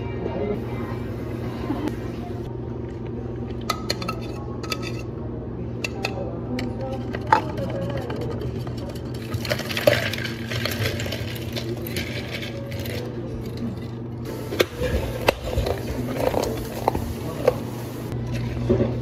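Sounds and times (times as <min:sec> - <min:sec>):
low hum of cafe equipment: 0:00.0 - 0:19.0
ice clinking into plastic cup: 0:08.9 - 0:13.6.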